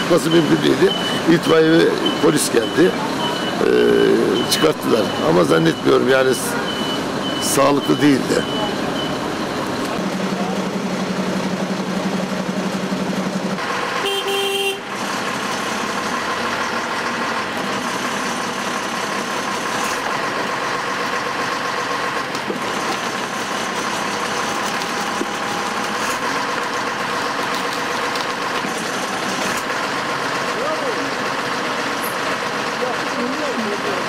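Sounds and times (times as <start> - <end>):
diesel engine running: 0.0 - 34.0
short horn toot: 14.0 - 14.9.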